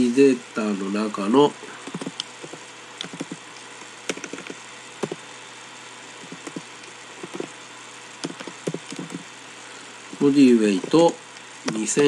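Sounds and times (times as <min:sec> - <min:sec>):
keyboard keys clicking: 0:01.9 - 0:03.4, 0:04.1 - 0:05.2, 0:06.2 - 0:06.6, 0:07.2 - 0:07.5, 0:08.2 - 0:09.2.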